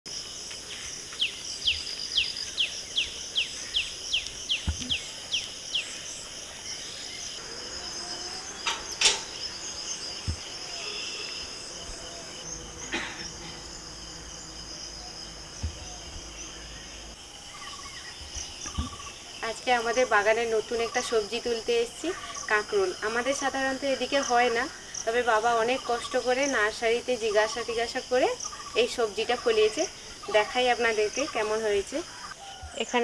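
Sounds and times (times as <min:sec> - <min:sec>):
high buzz of insects: 0:00.1 - 0:33.0
bird chirping: 0:00.7 - 0:19.9
metal gate clanking: 0:08.0 - 0:09.8.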